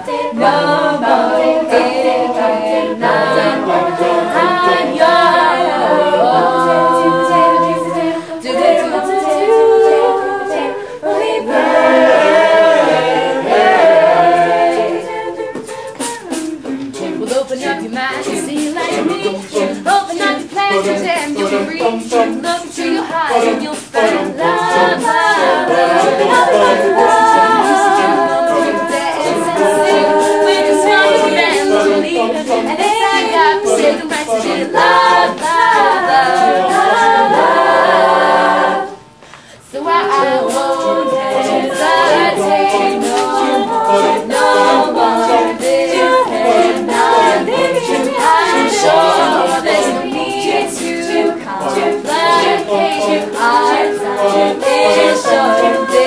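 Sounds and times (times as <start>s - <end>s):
a cappella group singing: 0.0s - 56.0s
rhythmic ticking beat: 0.0s - 56.0s
female lead voice singing: 15.0s - 37.5s.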